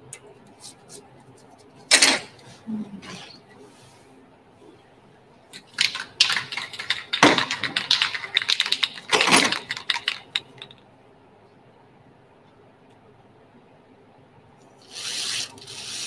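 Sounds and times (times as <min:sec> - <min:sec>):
aerosol can rattling: 0:05.6 - 0:10.7.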